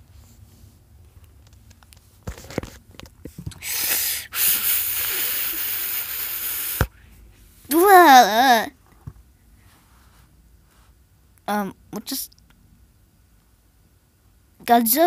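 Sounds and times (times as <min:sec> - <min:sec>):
loud steady hiss: 0:03.6 - 0:06.9.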